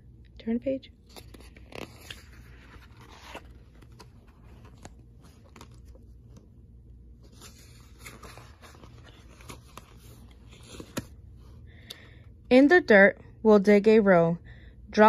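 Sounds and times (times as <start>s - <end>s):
faint low hum: 0.0s - 15.0s
book pages rustling: 1.0s - 11.5s.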